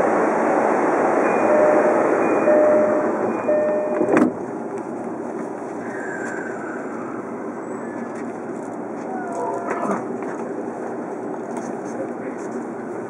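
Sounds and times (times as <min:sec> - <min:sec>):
electric train running noise: 0:00.0 - 0:08.9
repeated tone: 0:01.3 - 0:04.2.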